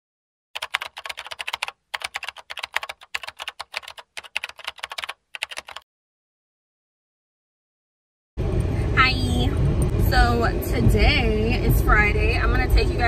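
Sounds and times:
computer keyboard key clicks: 0.6 - 5.8.

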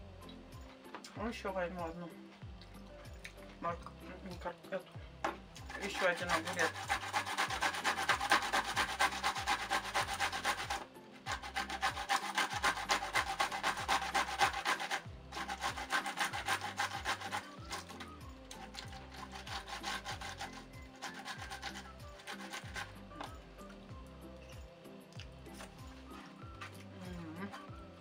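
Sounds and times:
cucumber grated on hand grater: 5.7 - 23.3.

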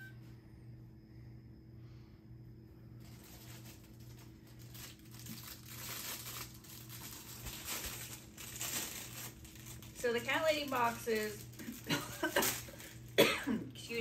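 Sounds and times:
packing material crinkling: 3.0 - 13.9.

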